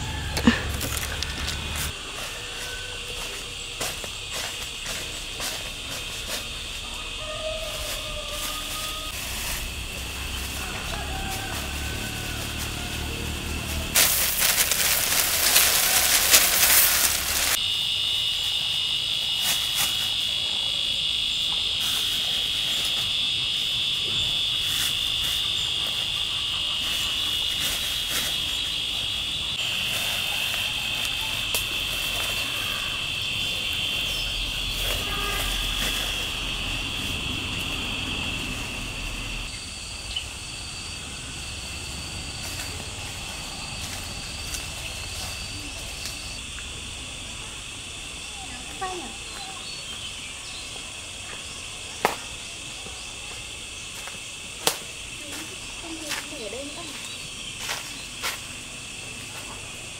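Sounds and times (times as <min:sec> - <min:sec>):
high-pitched insect chorus: 0:00.0 - 0:59.9
rice husks pouring into basket: 0:08.2 - 0:17.6.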